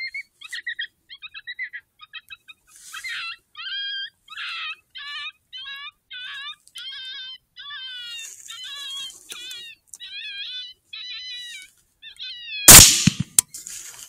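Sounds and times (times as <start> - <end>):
rifle shot: 12.7 - 13.4.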